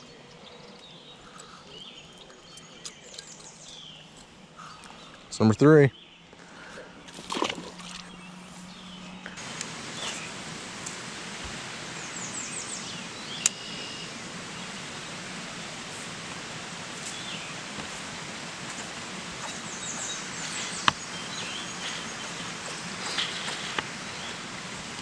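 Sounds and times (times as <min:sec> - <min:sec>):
bird chirping: 0:00.0 - 0:06.4, 0:11.9 - 0:15.2, 0:19.4 - 0:24.5
outdoor background hiss: 0:00.0 - 0:25.0.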